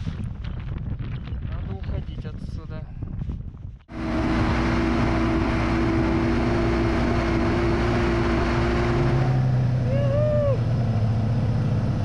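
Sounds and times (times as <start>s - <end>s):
wind rush: 0.0s - 9.6s
snowmobile engine at speed: 3.9s - 12.0s.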